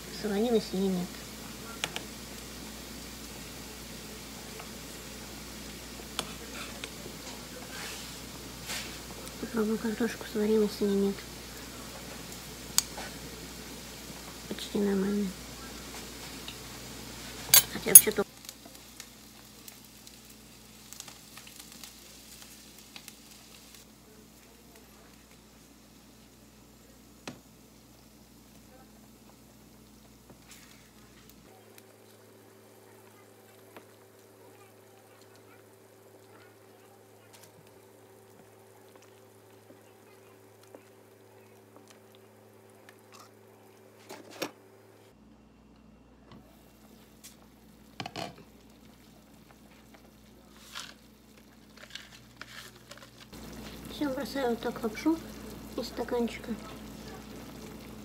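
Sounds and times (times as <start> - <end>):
frying pan sizzling: 0.0 - 45.0, 46.4 - 58.0
spatula scraping a pan: 7.6 - 9.0.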